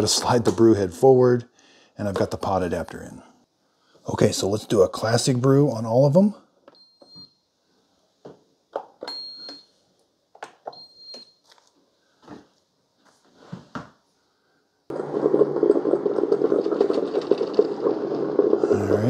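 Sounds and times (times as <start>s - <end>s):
coffee makers brewing: 14.9s - 19.0s.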